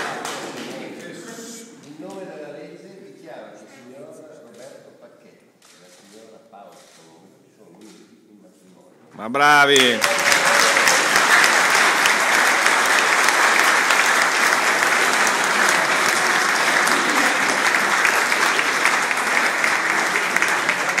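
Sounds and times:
crowd applauding: 0.0s - 1.2s, 9.4s - 21.0s.

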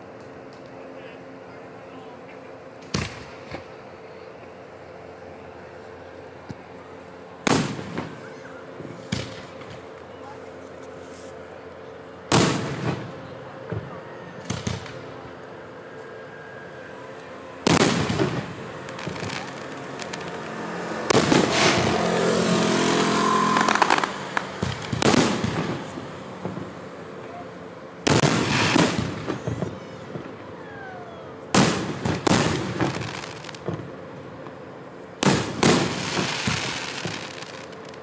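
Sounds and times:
fireworks crackle and rumble: 0.0s - 38.0s
fireworks booming: 2.8s - 3.8s, 7.4s - 9.8s, 12.3s - 15.4s, 17.6s - 26.8s, 28.0s - 30.4s, 31.5s - 34.6s, 35.2s - 38.0s.

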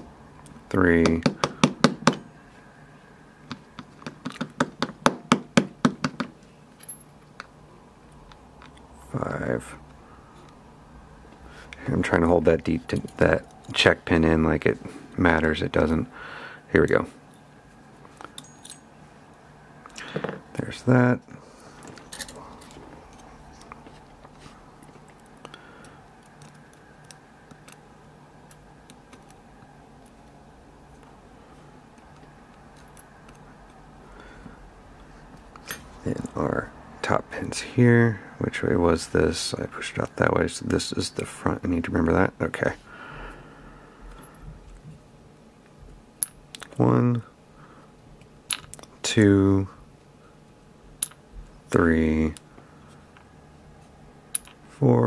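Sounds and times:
faint steady hum: 0.0s - 55.0s
tweezers clicking on small pins: 32.0s - 33.8s.

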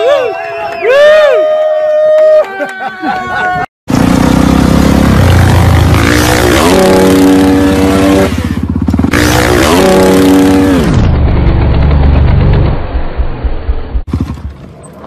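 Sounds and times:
motorcycle engine revving hard: 3.9s - 13.0s.

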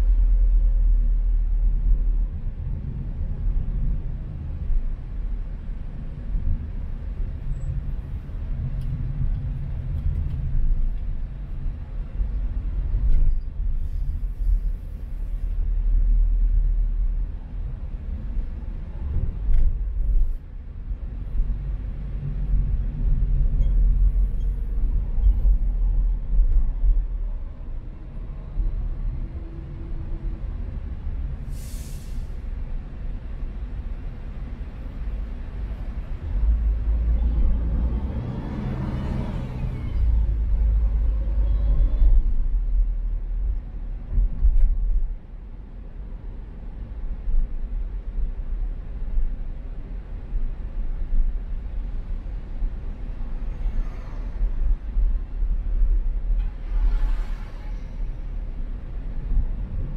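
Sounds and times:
engine and road rumble: 0.0s - 59.9s
short hiss: 31.5s - 32.4s.

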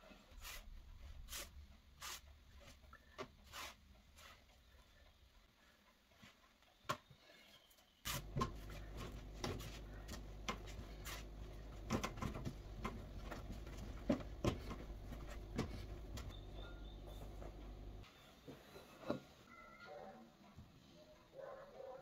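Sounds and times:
hands kneading dough: 8.1s - 18.0s
steady low hum: 8.1s - 18.1s.

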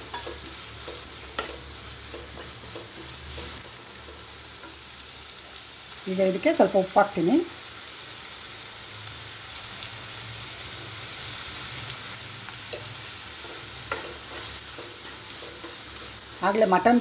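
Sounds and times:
onions sizzling in hot oil: 0.0s - 17.0s
spatula scraping a pan: 10.7s - 17.0s.

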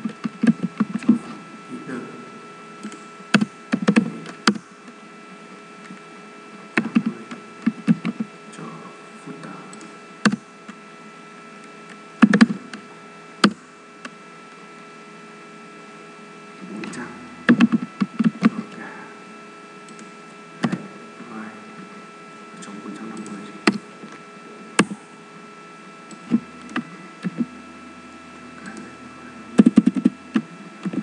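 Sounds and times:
steady electrical hum: 0.0s - 31.0s
computer keyboard typing: 2.8s - 4.6s, 6.8s - 8.3s, 16.8s - 18.6s, 19.8s - 20.8s, 29.6s - 31.0s.

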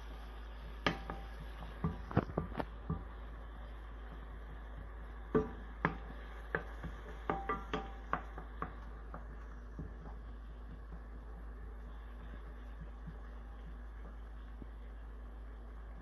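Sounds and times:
onion and garlic frying in oil: 0.0s - 16.0s
wooden spoon knocking on frying pan: 0.8s - 3.2s, 5.3s - 11.3s.

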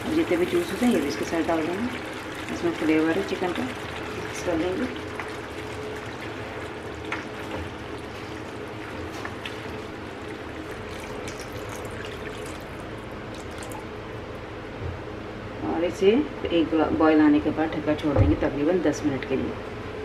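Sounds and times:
water pouring into gravy: 0.0s - 14.2s.

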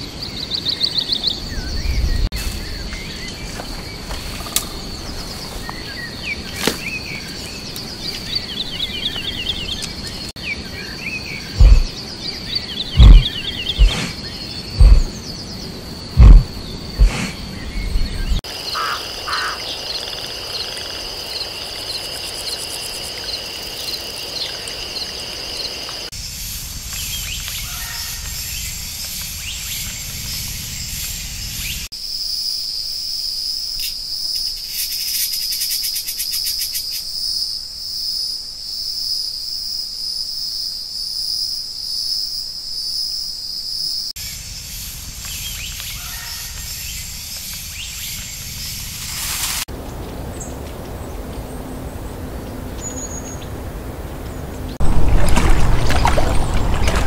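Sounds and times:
insects trilling: 12.8s - 49.6s
high single insect trill: 30.2s - 49.6s.

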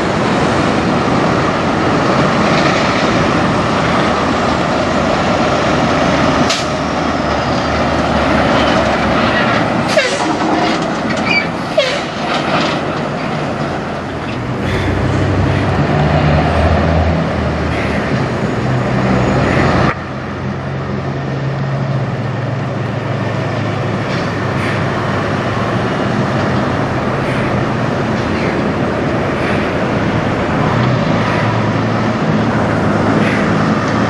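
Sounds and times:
diesel truck engines droning: 0.0s - 34.0s
short squeaks: 11.2s - 12.2s.

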